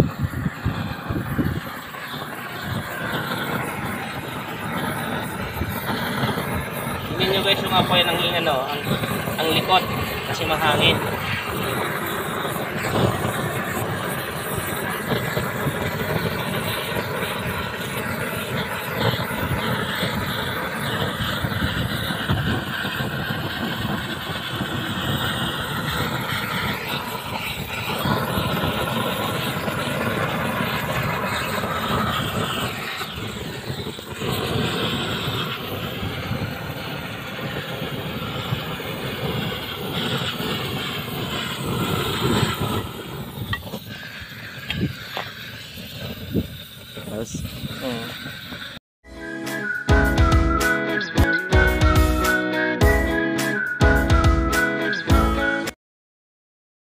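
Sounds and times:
gas torch burning: 0:00.0 - 0:52.4.

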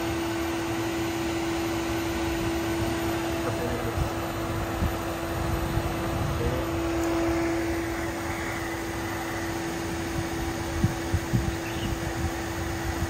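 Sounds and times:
machine hum with constant tone: 0:00.0 - 0:13.0.

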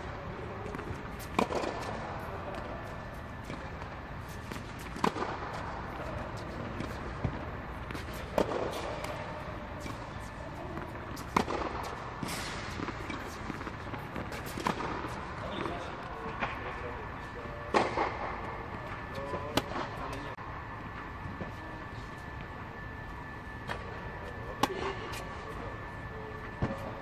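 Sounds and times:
racket hitting tennis ball: 0:00.6 - 0:15.2, 0:17.7 - 0:20.2.

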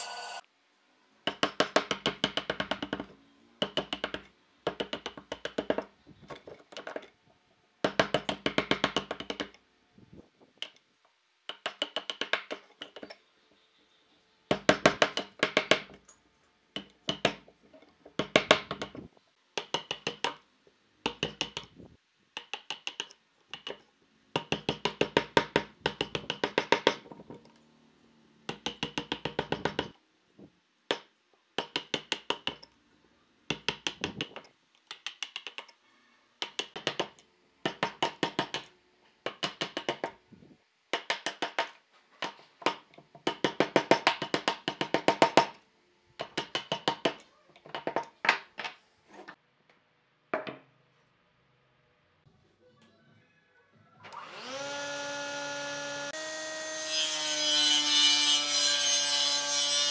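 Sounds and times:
mallet tapping chisel into wood: 0:01.3 - 0:05.9, 0:07.8 - 0:09.5, 0:11.5 - 0:13.1, 0:14.5 - 0:16.0, 0:16.8 - 0:17.4, 0:18.2 - 0:19.0, 0:19.6 - 0:20.4, 0:21.0 - 0:21.7, 0:22.4 - 0:23.8, 0:24.4 - 0:27.1, 0:28.5 - 0:29.9, 0:30.9 - 0:32.6, 0:33.5 - 0:35.7, 0:36.4 - 0:38.7, 0:39.3 - 0:40.2, 0:40.9 - 0:45.5, 0:46.2 - 0:48.4.

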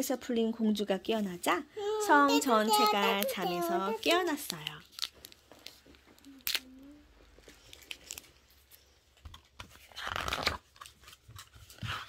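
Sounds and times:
plastic wrapper crinkling: 0:02.4 - 0:08.6
book page turning: 0:02.8 - 0:06.7, 0:09.5 - 0:12.0.

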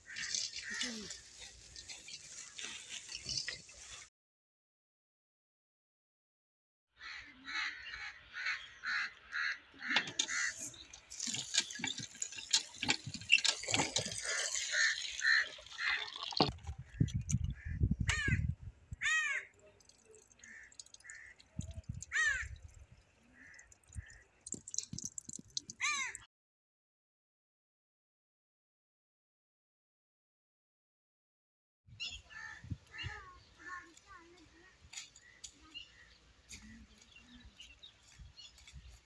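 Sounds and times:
crows cawing: 0:00.0 - 0:01.4, 0:07.0 - 0:10.6, 0:14.2 - 0:16.1, 0:17.6 - 0:18.4, 0:19.0 - 0:19.6, 0:20.4 - 0:21.4, 0:22.1 - 0:22.6, 0:23.4 - 0:24.2, 0:25.8 - 0:26.2, 0:32.3 - 0:34.0
water pouring into metal colander: 0:10.4 - 0:17.4, 0:19.8 - 0:22.7, 0:23.4 - 0:26.2.

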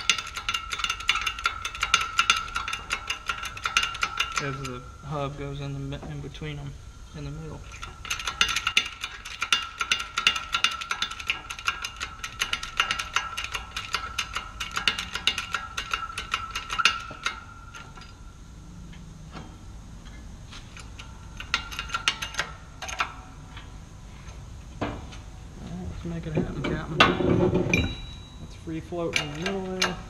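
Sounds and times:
metallic ratcheting clicks with squeak: 0:00.0 - 0:05.3, 0:07.6 - 0:23.7, 0:27.7 - 0:30.0.

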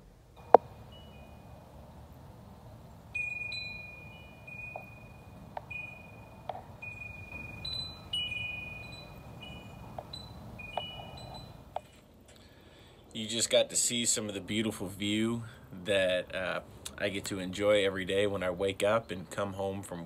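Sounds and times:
low background rumble: 0:00.0 - 0:20.0
wind chimes ringing: 0:00.4 - 0:12.0.

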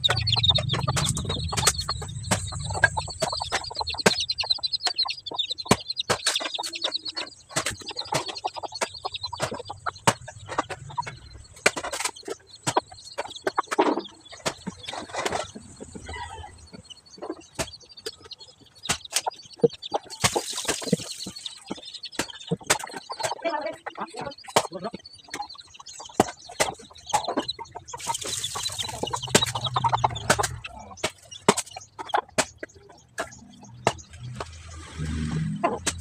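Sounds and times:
chickens clucking: 0:00.0 - 0:36.0
blade chopping wood: 0:28.9 - 0:34.6.

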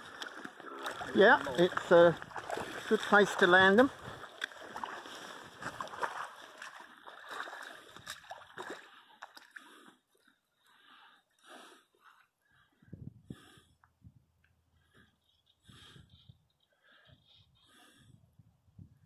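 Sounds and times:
shallow water splashing: 0:00.0 - 0:11.1.

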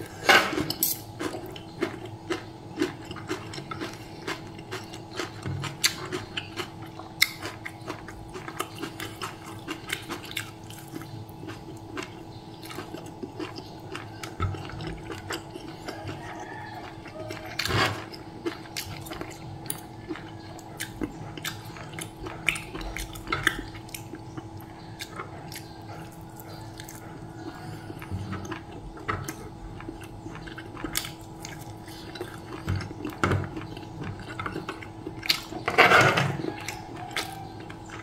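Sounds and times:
faint steady hum: 0:00.0 - 0:38.0
cutlery scraping a tray: 0:00.1 - 0:01.0
chewing and biting: 0:01.0 - 0:38.0.

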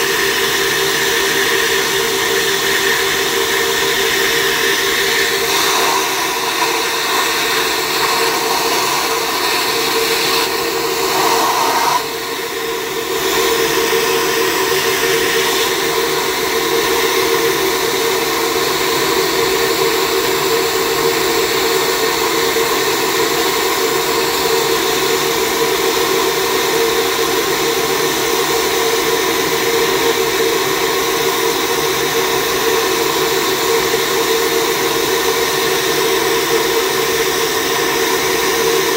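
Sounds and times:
loud rush of air with hum: 0:04.8 - 0:15.7.

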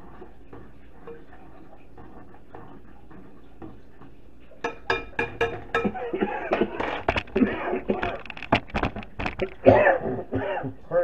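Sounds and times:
spoon tapping saucepan rim: 0:04.6 - 0:06.1.

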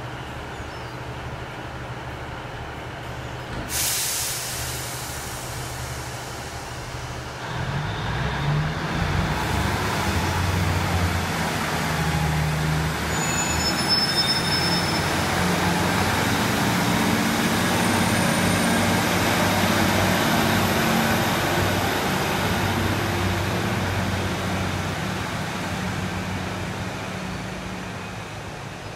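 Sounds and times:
diesel train engine rumbling: 0:00.0 - 0:28.9
high-pitched train squeals: 0:11.8 - 0:16.4, 0:17.3 - 0:19.9.

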